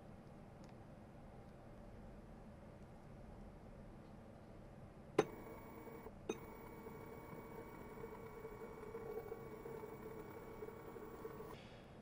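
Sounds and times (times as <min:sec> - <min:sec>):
drive motor whining: 0:05.2 - 0:11.6
motor click: 0:05.2 - 0:11.6.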